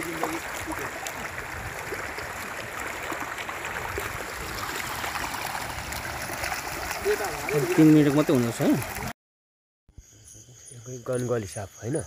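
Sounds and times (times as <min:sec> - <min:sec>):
stream flowing over stones: 0:00.0 - 0:09.1.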